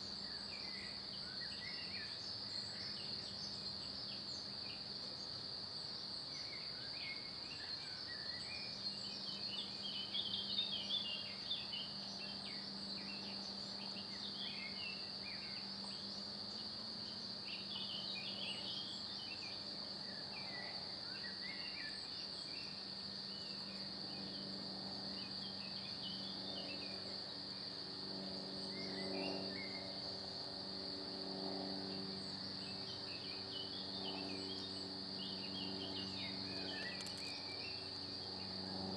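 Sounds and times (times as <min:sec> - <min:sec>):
steady high-pitched whine: 0:00.0 - 0:38.9.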